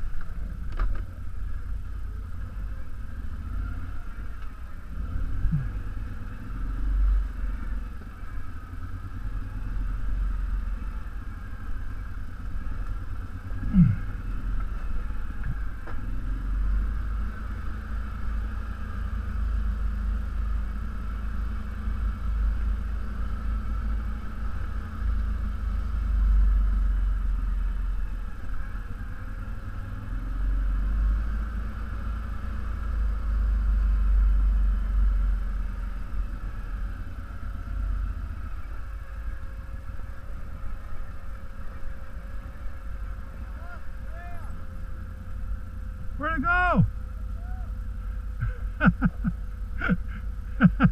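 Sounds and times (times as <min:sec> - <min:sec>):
atv engine rumbling: 0:00.0 - 0:50.9.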